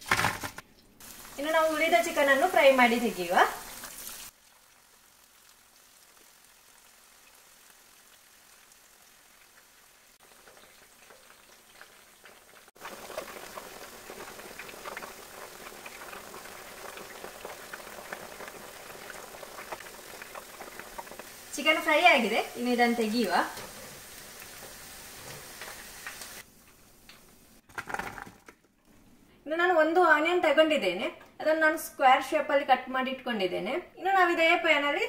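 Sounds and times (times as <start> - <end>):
chicken frying in oil: 1.0 - 26.9.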